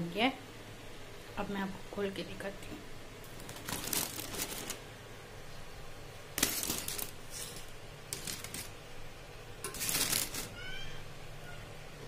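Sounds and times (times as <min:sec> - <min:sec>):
aluminium foil crinkling: 0:03.3 - 0:04.8, 0:06.4 - 0:08.8, 0:09.6 - 0:10.6.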